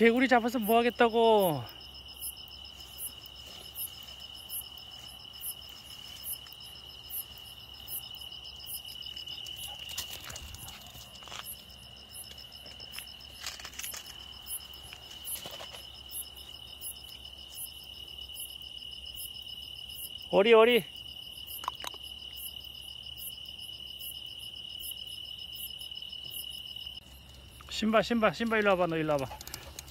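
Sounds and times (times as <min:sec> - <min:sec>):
high insect chirps: 0:00.0 - 0:29.9
insects trilling: 0:00.0 - 0:29.9
rustles and knocks: 0:14.9 - 0:15.9.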